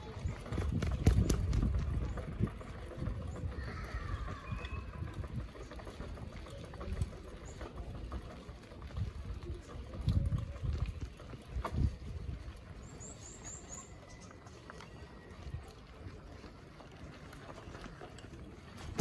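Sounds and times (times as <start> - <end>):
wind rumbling on microphone: 0.0 - 14.2
bike road noise: 0.0 - 19.0.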